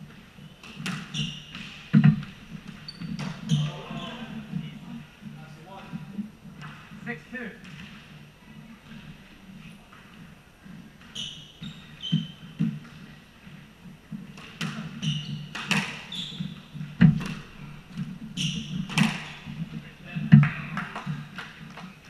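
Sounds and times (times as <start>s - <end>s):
sneakers squeaking on hardwood: 0.0s - 7.0s, 9.9s - 21.9s
squash ball hits: 0.6s - 3.5s, 14.3s - 21.8s.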